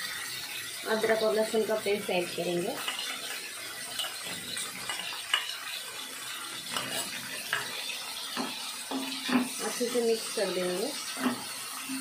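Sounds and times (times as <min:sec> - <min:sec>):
chicken sizzling in hot oil: 0:00.0 - 0:12.0
wooden spoon stirring: 0:02.8 - 0:05.6, 0:06.6 - 0:09.6
spoon knocking against pan: 0:08.3 - 0:09.6.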